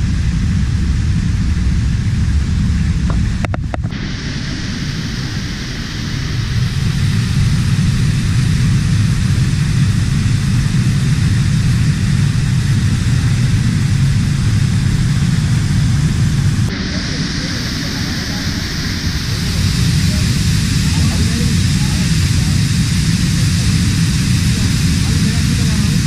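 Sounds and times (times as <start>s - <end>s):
waterfall rushing: 3.8s - 8.6s, 11.6s - 26.0s.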